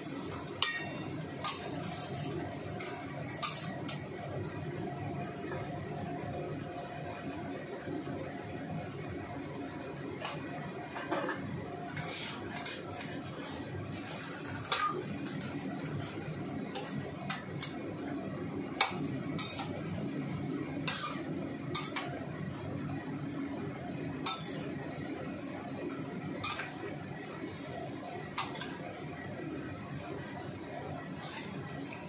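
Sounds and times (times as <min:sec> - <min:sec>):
metal utensil scraping a wok: 0:00.1 - 0:04.0, 0:11.0 - 0:17.8, 0:18.8 - 0:19.8, 0:20.8 - 0:22.2, 0:24.2 - 0:24.7, 0:26.4 - 0:26.9, 0:27.6 - 0:28.9, 0:31.1 - 0:32.0.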